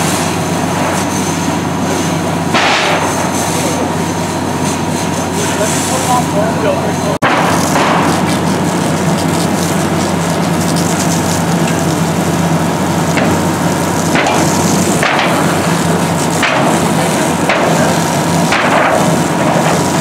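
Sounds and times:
engine drone: 0.0 - 20.0
fire hose stream hissing: 0.0 - 20.0.

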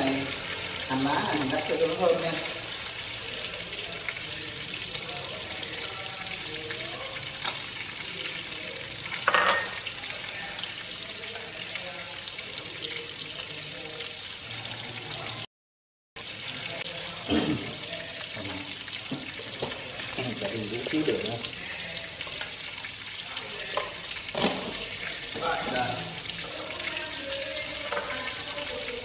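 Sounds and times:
fish sizzling in oil: 0.0 - 15.5, 16.2 - 29.0.

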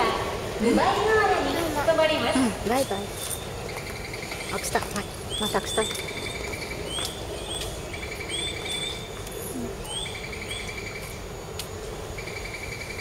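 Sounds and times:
bird chirps and trills: 2.8 - 9.2.

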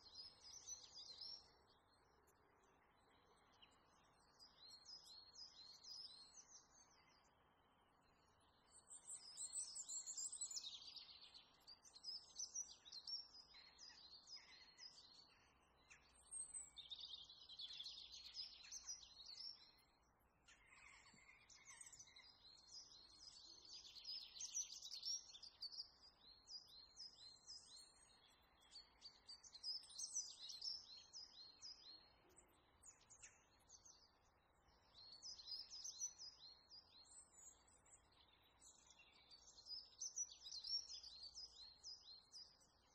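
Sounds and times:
small birds chirping: 0.0 - 42.9.

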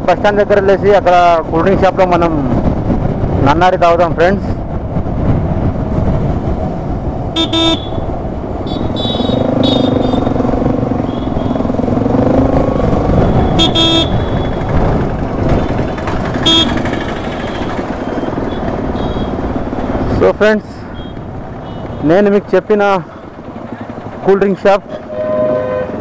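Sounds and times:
road traffic: 0.0 - 26.0
car horn honks: 7.4 - 10.3, 13.3 - 14.6, 16.4 - 17.6, 19.0 - 19.4, 24.9 - 26.0.

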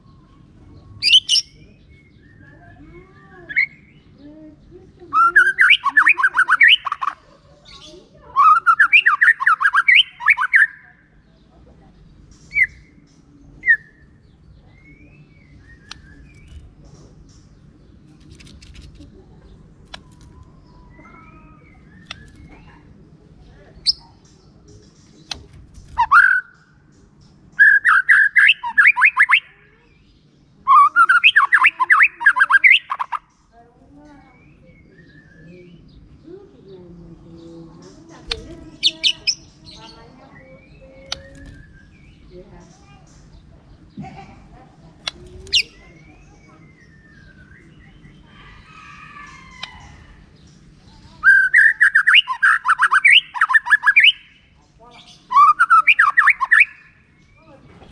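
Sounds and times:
bird whistling and chattering: 1.0 - 2.5, 5.1 - 11.0, 12.5 - 13.0, 19.9 - 22.6, 25.9 - 26.6, 27.5 - 29.7, 30.6 - 33.3, 38.3 - 39.8, 45.0 - 50.1, 51.2 - 57.1
bird singing whistled phrases: 5.1 - 7.1, 8.4 - 10.8, 27.6 - 29.5, 30.7 - 33.2, 51.2 - 54.4, 55.0 - 57.0.

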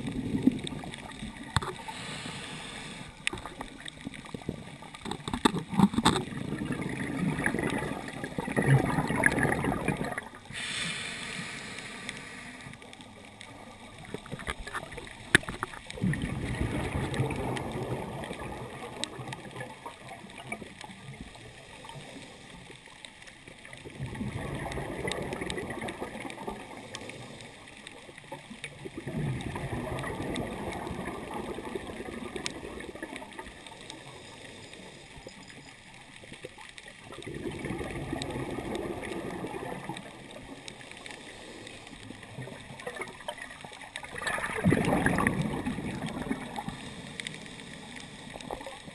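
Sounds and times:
underwater bubbles gurgling: 0.0 - 48.9
regulator hiss: 1.8 - 3.3, 10.5 - 12.7.

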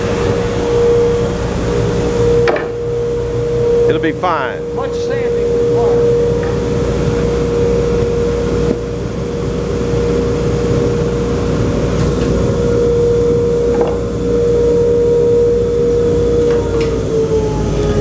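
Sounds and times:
electric motor humming: 0.0 - 10.9.

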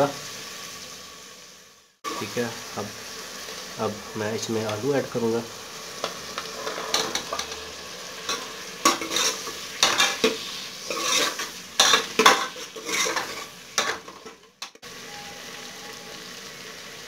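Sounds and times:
oil sizzling: 0.0 - 17.0
ladle scraping a metal pot: 6.5 - 7.7, 8.3 - 14.4.

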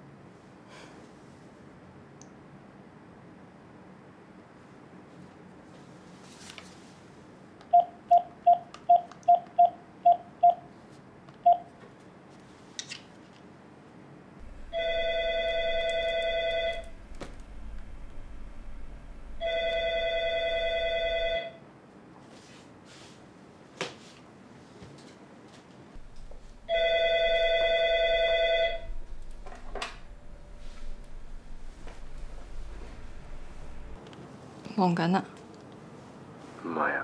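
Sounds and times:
phone keypad beeps: 7.8 - 10.6
telephone ringing: 14.4 - 17.0, 19.4 - 21.6, 26.0 - 31.2.

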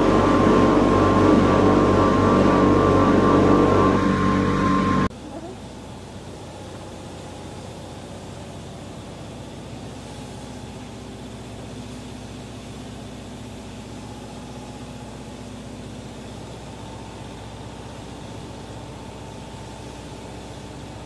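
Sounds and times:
machine hum: 0.0 - 6.4.

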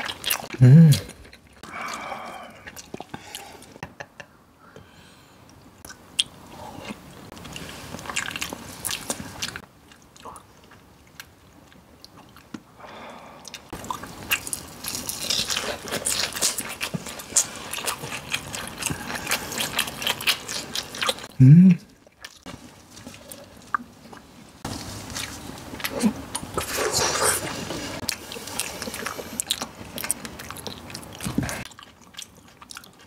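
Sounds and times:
person humming mm: 0.6 - 1.1, 21.3 - 21.9
crunching fried crust: 13.7 - 21.3.

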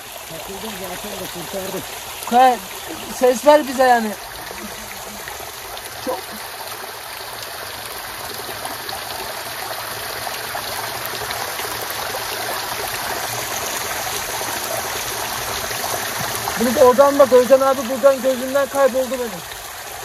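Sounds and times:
water splashing into pooled water: 0.0 - 20.0.

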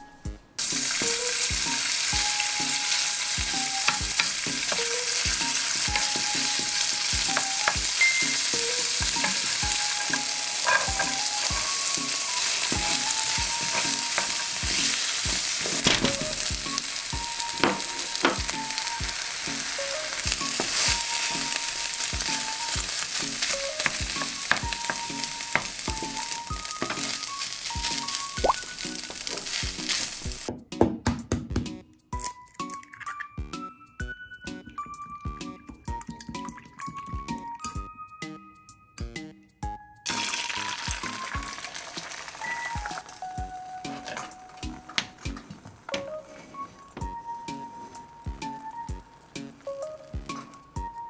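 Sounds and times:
food sizzling in frying pan: 0.6 - 30.5, 40.1 - 51.0
wooden spatula scraping pan: 9.1 - 16.3, 43.9 - 48.1.

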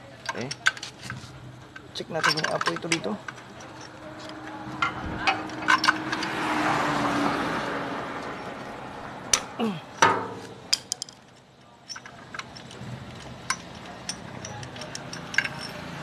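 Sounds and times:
rushing background noise: 0.0 - 16.0
metal tool clicks and taps: 11.9 - 15.8.

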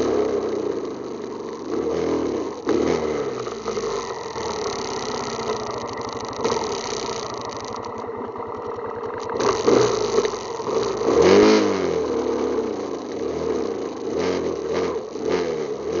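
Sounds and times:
engine running and revving: 0.0 - 16.0.

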